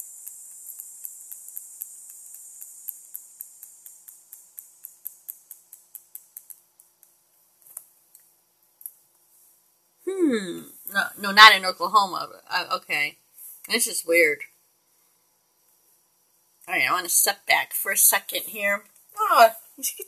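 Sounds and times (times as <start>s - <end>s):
rapid small clicks: 0.0s - 9.3s
faint high hiss: 0.0s - 20.0s.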